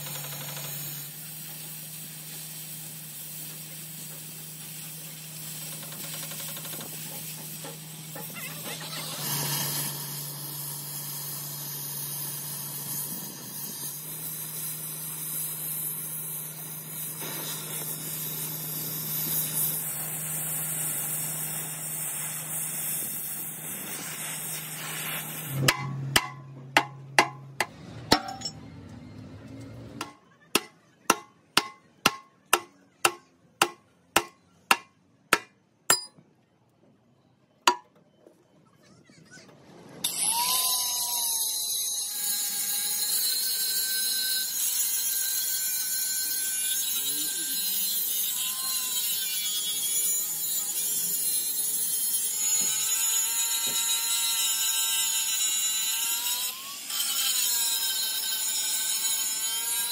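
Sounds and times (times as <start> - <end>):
cutting torch hissing: 0.5 - 25.7.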